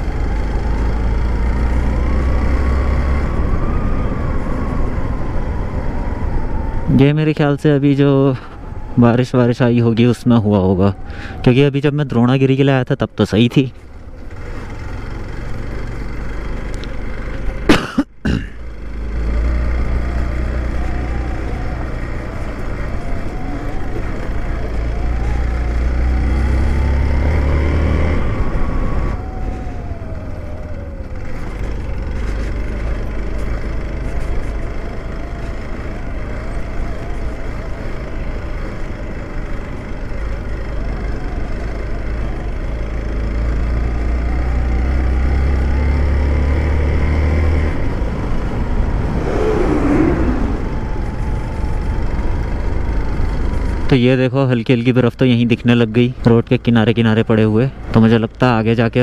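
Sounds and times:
motorcycle engine revving: 0.0s - 3.9s, 18.8s - 30.6s, 40.8s - 53.8s.

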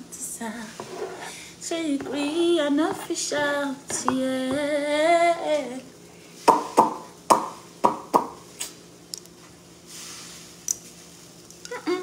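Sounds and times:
woman singing: 0.0s - 0.9s, 1.6s - 5.9s.

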